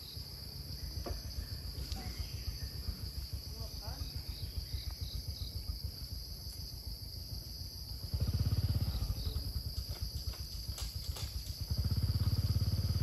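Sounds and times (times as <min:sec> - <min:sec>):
insects droning: 0:00.0 - 0:13.0
low pulsing rumble: 0:00.3 - 0:13.0.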